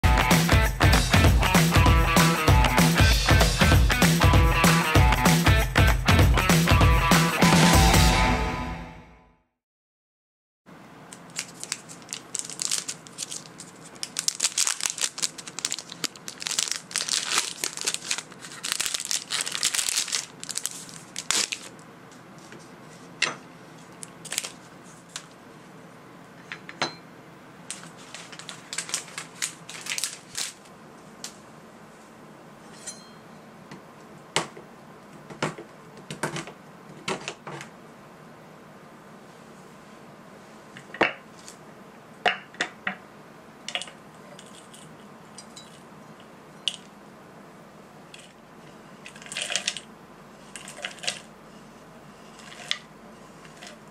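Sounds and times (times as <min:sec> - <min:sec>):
wrapper crinkling and tearing: 0:11.1 - 0:21.8, 0:24.0 - 0:25.4, 0:27.7 - 0:30.7, 0:49.1 - 0:49.9, 0:50.5 - 0:51.3, 0:52.3 - 0:53.9.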